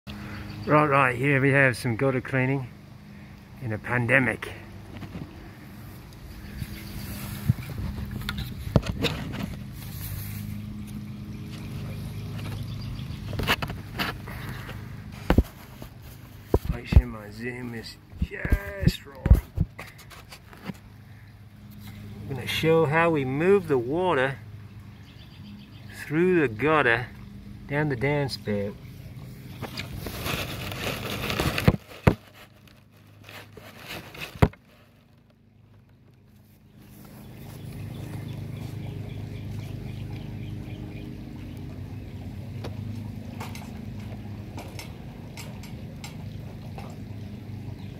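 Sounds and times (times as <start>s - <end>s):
motor humming: 4.6s - 47.9s
light rustling on grass: 4.9s - 17.2s, 29.2s - 35.4s, 36.3s - 40.4s.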